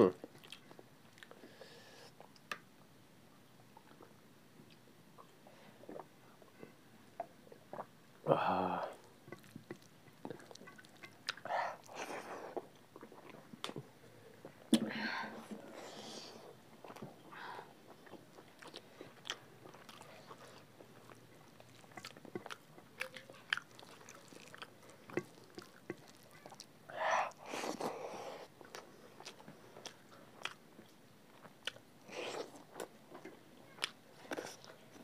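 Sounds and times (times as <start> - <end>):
wet chewing and lip-smacking: 0.2 - 1.4, 9.0 - 14.9, 16.4 - 35.0.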